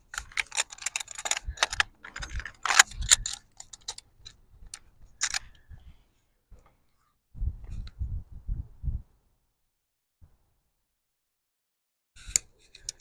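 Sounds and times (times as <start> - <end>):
fishing gear clicking: 0.0 - 5.6.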